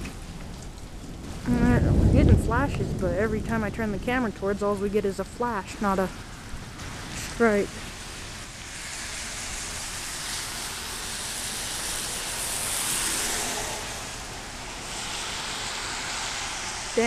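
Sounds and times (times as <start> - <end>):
tyres hissing on wet road: 5.0 - 17.0.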